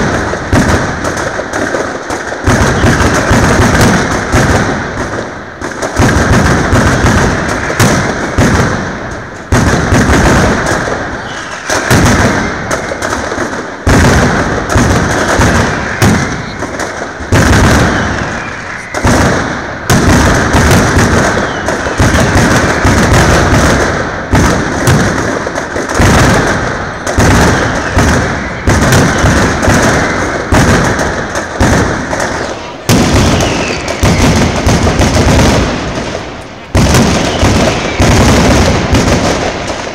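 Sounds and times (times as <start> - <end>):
firecrackers banging: 0.0 - 39.9.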